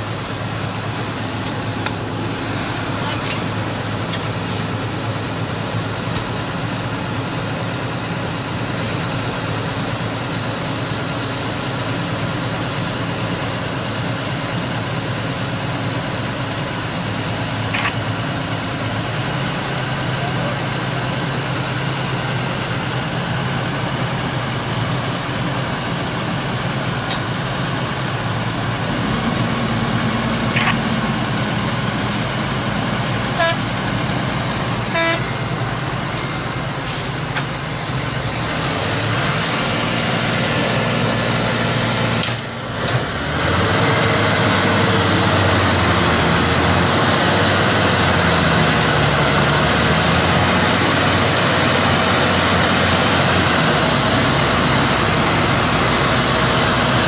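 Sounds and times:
tractor diesel engines running: 0:00.0 - 0:57.0
short horn toots: 0:33.3 - 0:33.8, 0:34.8 - 0:35.4.

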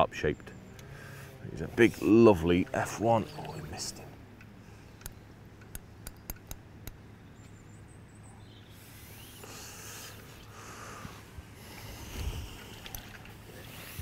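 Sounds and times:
soft scratchy rustle: 0:01.1 - 0:04.1.

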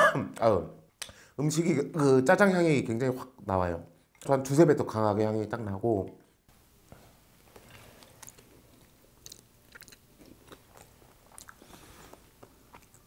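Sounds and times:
chewing and slurping: 0:07.6 - 0:13.0.

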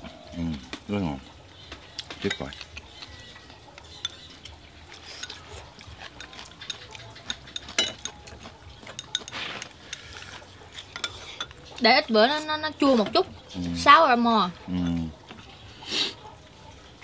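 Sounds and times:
chopsticks clicking on bowls: 0:02.0 - 0:11.9.

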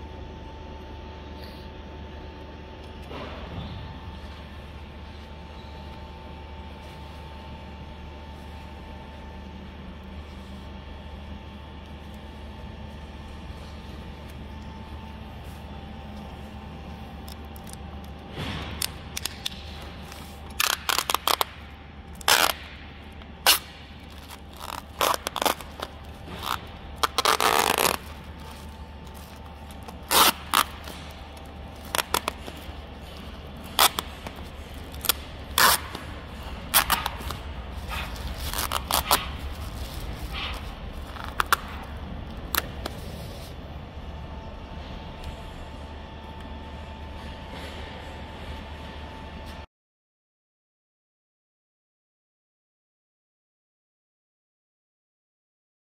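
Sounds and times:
steady low hum: 0:00.0 - 0:49.7
crackles and ripping rustles: 0:04.2 - 0:43.9.

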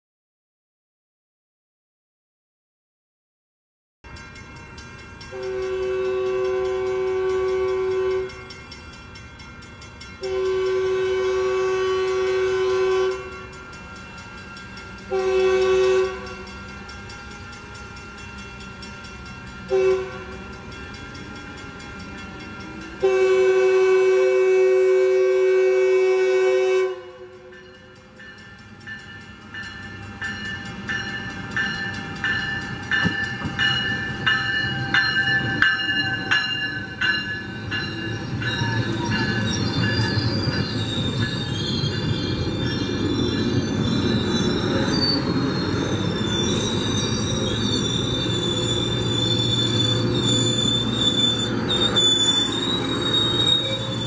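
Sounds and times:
train rumble and wheels on rails: 0:04.0 - 0:54.0
train air horn blasts: 0:05.3 - 0:08.4, 0:10.2 - 0:13.6, 0:15.1 - 0:16.5, 0:19.7 - 0:20.5, 0:21.6 - 0:27.6
wheel and brake squeal: 0:38.1 - 0:54.0.

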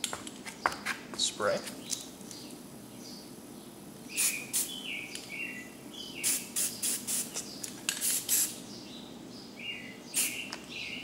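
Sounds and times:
spray paint can hissing: 0:04.2 - 0:04.8, 0:06.2 - 0:08.6, 0:10.2 - 0:10.5.

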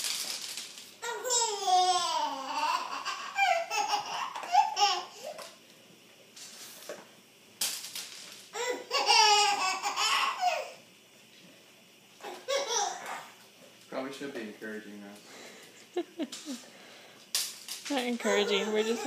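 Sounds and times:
toddler giggling: 0:01.0 - 0:05.3, 0:12.2 - 0:13.4.

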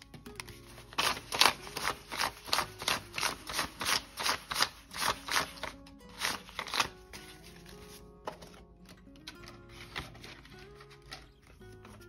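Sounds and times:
bills flicked by hand: 0:00.0 - 0:07.2
soft background music: 0:00.0 - 0:12.0.

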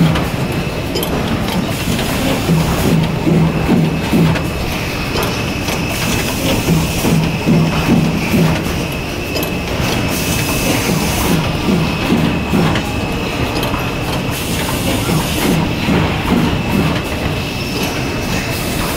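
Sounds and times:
machine clattering: 0:00.0 - 0:18.9.

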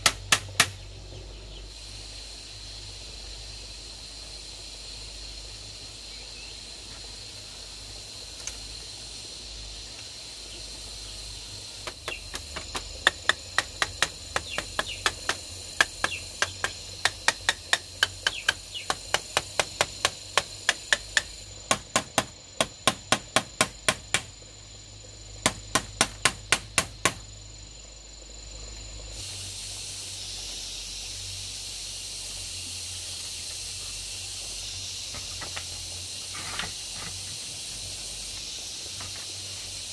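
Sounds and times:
hand tool striking bamboo: 0:00.0 - 0:00.8, 0:11.8 - 0:24.3, 0:25.4 - 0:27.2
insects chirring: 0:00.0 - 0:39.9.

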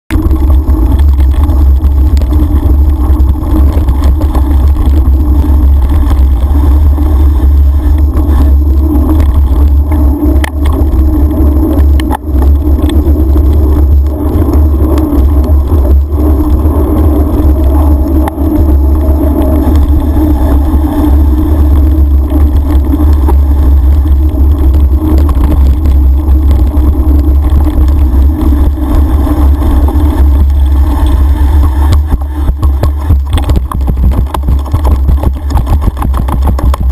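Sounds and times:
riding vibration: 0:00.0 - 0:36.9
wind buffeting microphone: 0:00.1 - 0:36.9.

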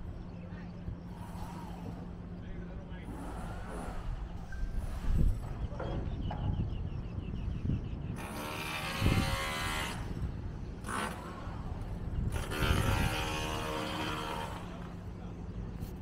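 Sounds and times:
motor buzzing: 0:08.2 - 0:15.1.

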